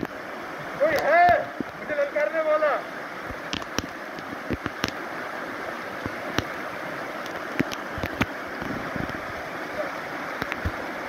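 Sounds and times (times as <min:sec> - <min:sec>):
stream rushing over stones: 0:00.0 - 0:11.0
sharp clicks and knocks: 0:03.3 - 0:05.0, 0:07.2 - 0:09.2.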